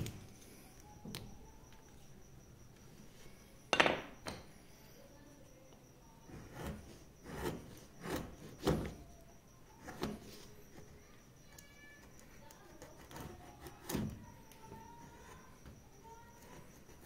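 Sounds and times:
chisel cutting into wood: 6.3s - 8.9s.

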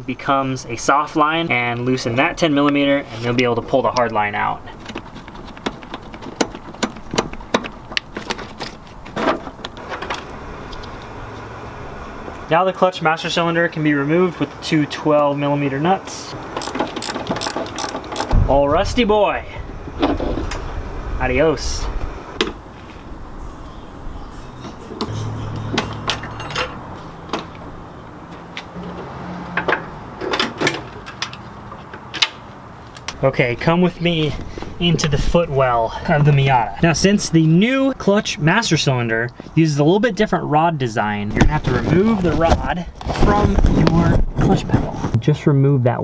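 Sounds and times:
low steady hum: 16.3s - 30.2s
metal tools clicking and clinking: 16.6s - 18.4s, 25.8s - 26.8s.

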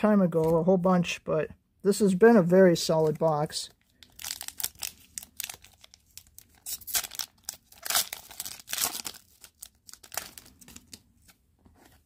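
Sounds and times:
foil wrappers crinkling and tearing: 3.9s - 11.0s.

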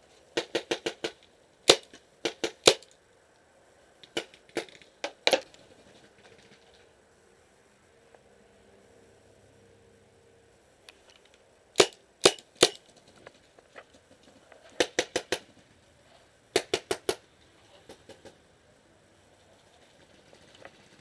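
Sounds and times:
paintball pistol shots: 0.4s - 2.9s, 11.8s - 12.8s, 14.8s - 15.4s, 16.6s - 17.2s
distant paintball marker pops: 16.6s - 17.2s.

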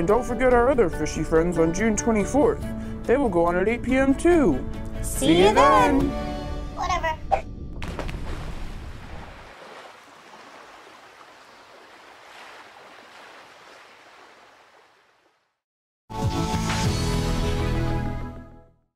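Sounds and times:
watery rushing noise: 7.8s - 15.5s.

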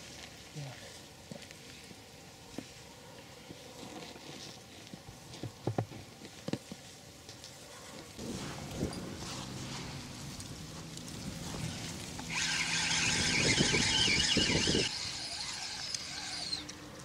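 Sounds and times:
fishing reel buzzing: 12.3s - 16.8s.

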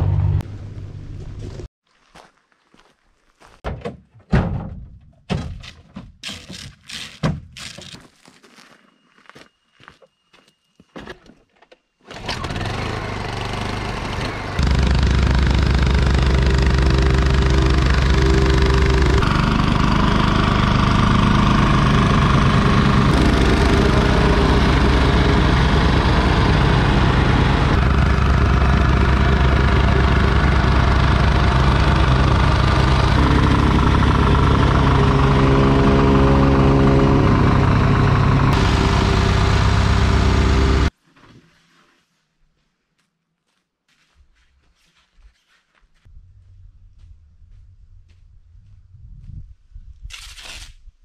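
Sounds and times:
quieter engine running: 0.0s - 1.7s, 12.1s - 40.9s
plate compactor on gravel: 12.1s - 41.0s.

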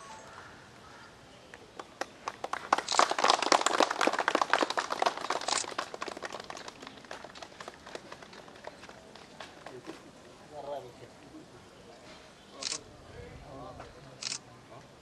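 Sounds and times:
people clapping: 1.5s - 10.1s.

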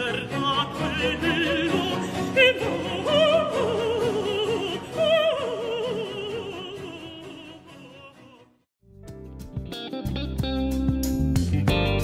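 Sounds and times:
operatic singing with vibrato: 0.0s - 8.7s
instrumental accompaniment: 8.8s - 12.0s.

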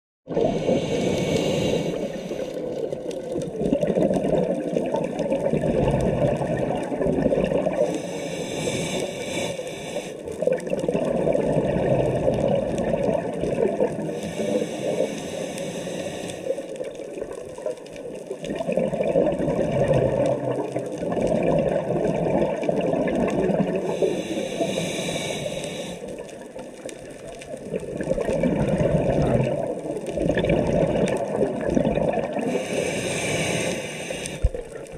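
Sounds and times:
bubbling underwater exhalations: 0.3s - 8.0s, 10.3s - 14.6s, 18.3s - 25.0s, 27.5s - 34.9s
regulator inhale hiss: 0.4s - 3.0s, 7.8s - 10.4s, 14.0s - 16.9s, 23.8s - 26.4s, 32.4s - 34.8s.

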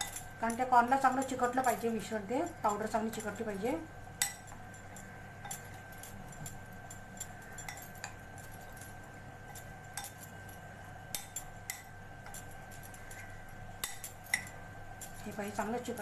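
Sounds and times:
spoon clinking against glass: 4.2s - 16.0s
spoon stirring in glass bowl: 4.2s - 16.0s.

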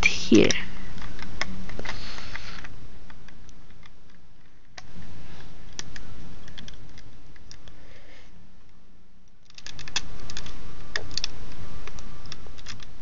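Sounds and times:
plastic bricks clicking: 9.4s - 11.3s.

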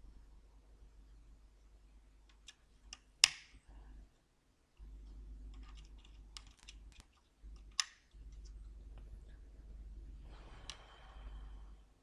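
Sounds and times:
multimeter probes clicking on components: 2.2s - 3.7s, 4.8s - 9.1s.

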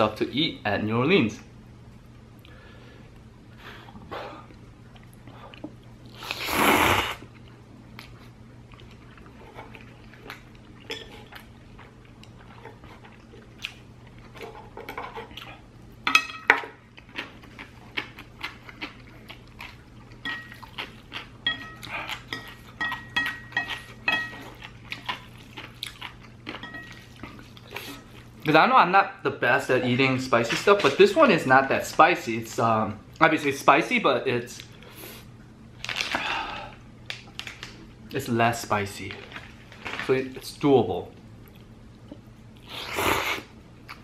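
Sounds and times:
person chewing: 3.9s - 15.7s, 16.7s - 28.5s
chopsticks clinking against dishes: 21.4s - 24.4s.

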